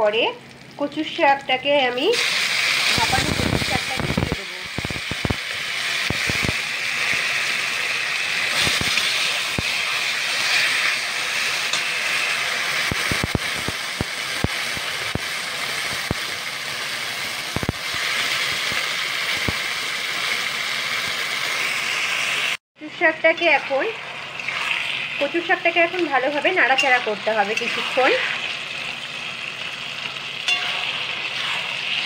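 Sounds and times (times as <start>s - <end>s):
greens sizzling in hot oil: 0.0s - 32.0s
spatula scraping a pan: 26.6s - 28.5s, 30.5s - 32.0s.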